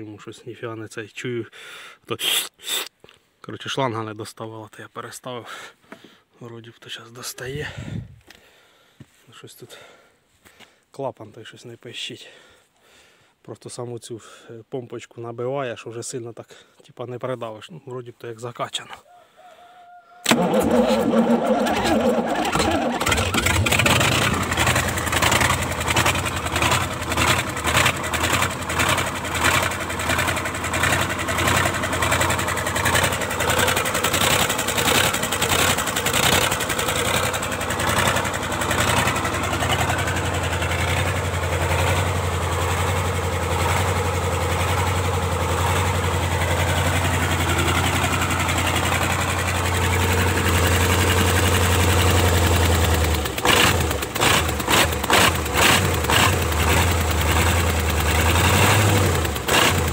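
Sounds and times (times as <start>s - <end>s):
diesel engine idling: 20.3s - 59.9s.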